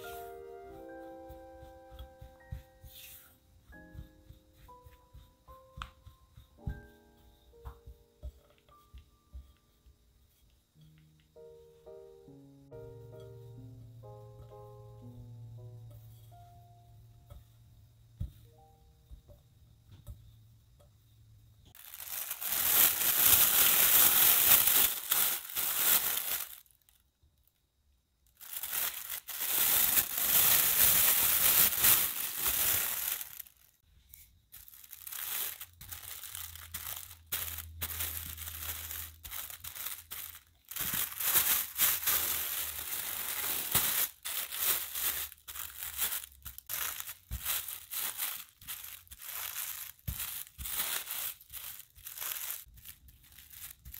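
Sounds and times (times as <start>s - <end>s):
rolling pin rolling dough in plastic: 0.0s - 11.6s, 21.7s - 27.0s, 28.2s - 53.9s
plastic sheet crinkling: 21.7s - 27.0s, 28.3s - 33.8s, 34.5s - 53.9s.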